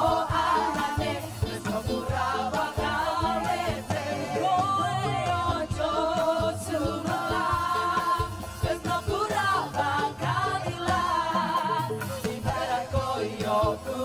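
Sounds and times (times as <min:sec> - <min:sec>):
group of voices singing: 0:00.0 - 0:14.0.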